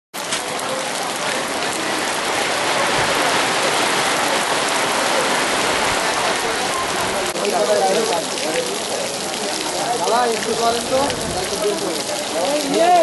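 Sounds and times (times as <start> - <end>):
rain on wet road: 0.1 - 13.0.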